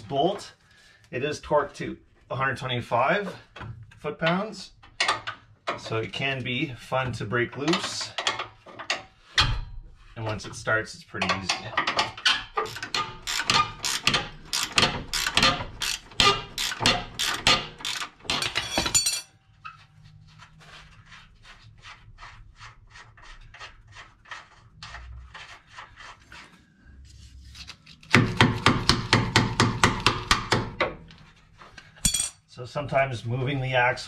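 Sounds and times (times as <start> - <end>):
ratchet wrench clicking: 12.6 - 18.4.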